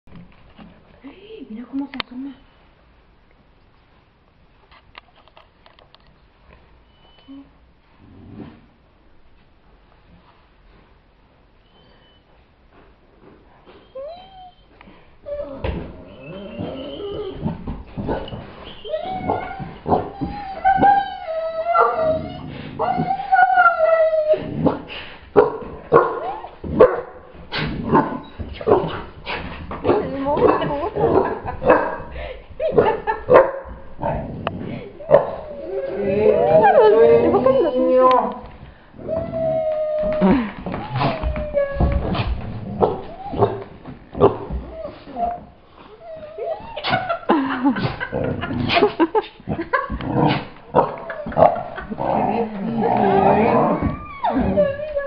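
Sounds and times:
dog howling: 18.8 - 24.8, 35.0 - 38.4, 39.0 - 43.7, 50.8 - 55.0
dog barking: 25.4 - 27.2, 30.5 - 32.1, 32.8 - 33.8.

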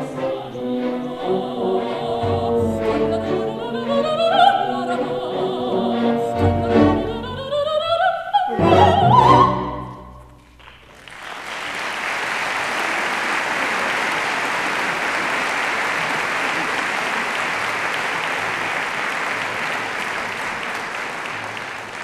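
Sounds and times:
audience applause: 10.5 - 22.0.

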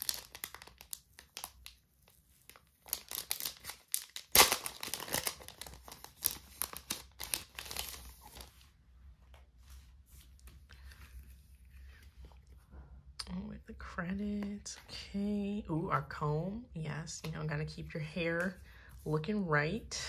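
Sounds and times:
plastic sleeve crinkling: 0.0 - 9.4.

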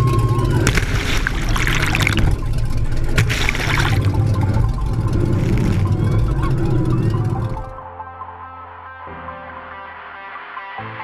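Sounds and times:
rushing splashing water: 0.0 - 7.8
boat engine rumble: 0.0 - 7.9.

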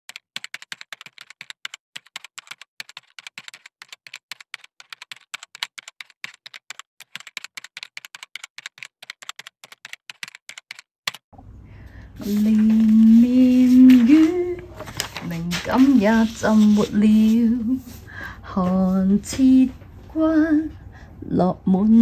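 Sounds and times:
keyboard typing: 0.0 - 11.3.

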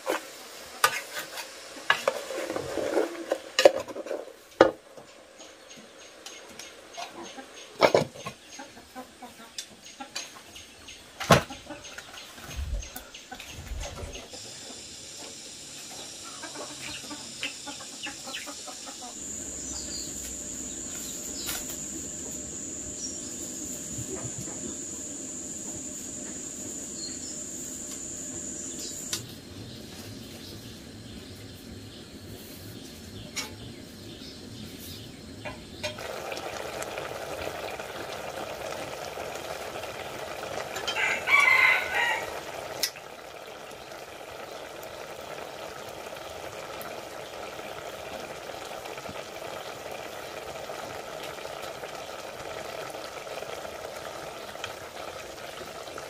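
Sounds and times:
pot boiling with hiss: 0.0 - 56.0
rooster crowing: 40.8 - 42.7.

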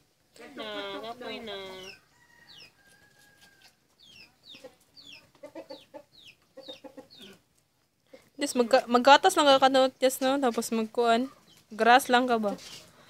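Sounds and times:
chickens clucking: 0.4 - 8.8
chicks peeping: 1.6 - 7.5.

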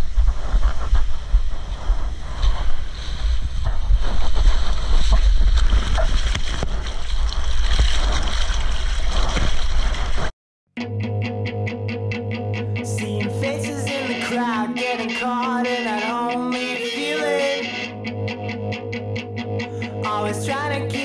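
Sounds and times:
rumble of breaking surf: 0.0 - 10.3
wind buffeting microphone: 0.0 - 10.3.

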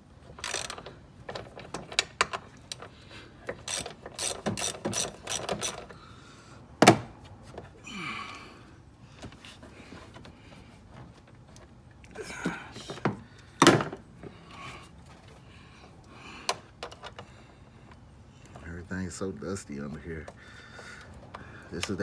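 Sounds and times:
ratchet wrench clicking: 0.4 - 0.9, 3.5 - 6.0.

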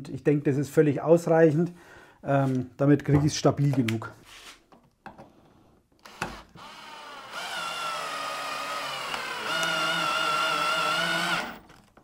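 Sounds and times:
cordless drill whining: 6.0 - 11.8.

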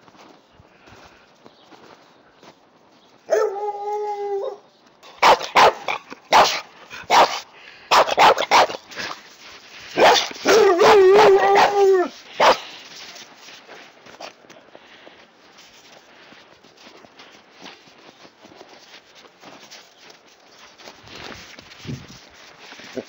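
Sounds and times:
dog howling: 3.3 - 4.6, 10.0 - 12.2
dog barking: 5.2 - 9.2, 10.0 - 12.7.

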